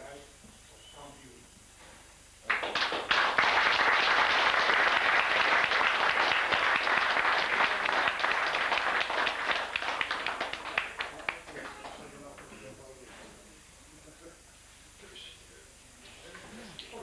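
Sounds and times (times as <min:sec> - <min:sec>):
audience applauding: 0:02.4 - 0:12.1.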